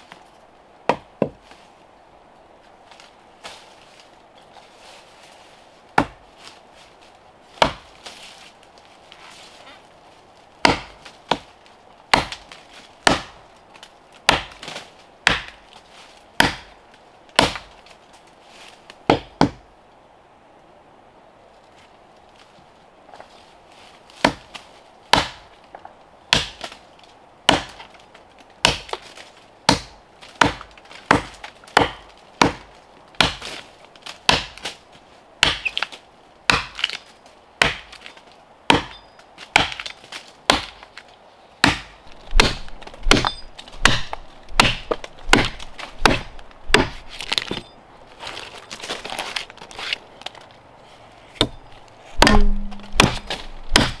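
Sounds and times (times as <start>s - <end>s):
axe chopping tree trunk: 0.9s - 1.4s, 6.0s - 6.2s, 7.6s - 7.9s, 10.6s - 11.5s, 12.1s - 13.4s, 14.2s - 15.6s, 16.4s - 16.8s, 17.4s - 17.7s, 19.1s - 19.6s, 24.2s - 25.4s, 26.3s - 26.8s, 27.5s - 27.9s, 28.6s - 29.1s, 29.7s - 33.6s, 34.3s - 34.8s, 35.4s - 37.0s, 37.6s - 38.1s, 38.7s - 40.9s, 41.6s - 47.7s, 51.4s - 54.0s.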